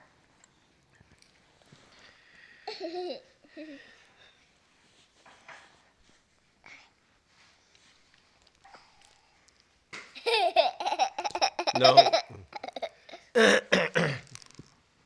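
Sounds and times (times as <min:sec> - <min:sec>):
baby laughing: 0:10.2 - 0:13.3.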